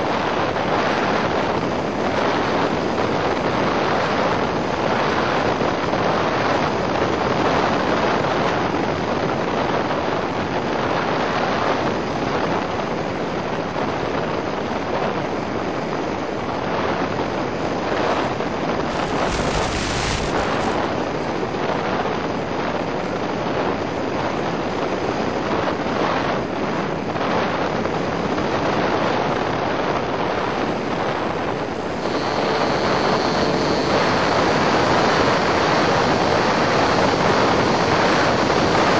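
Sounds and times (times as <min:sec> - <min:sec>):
airflow rushing over microphone: 0:18.7 - 0:21.4, 0:30.4 - 0:38.9
electric motor whine: 0:18.9 - 0:20.8, 0:31.8 - 0:38.9.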